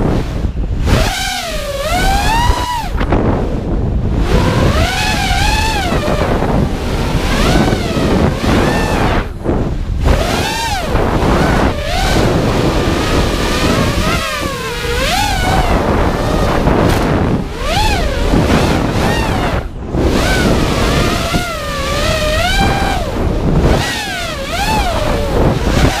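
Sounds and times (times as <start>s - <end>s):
drone motors whining: 0.0s - 26.0s
wind on microphone: 0.0s - 26.0s.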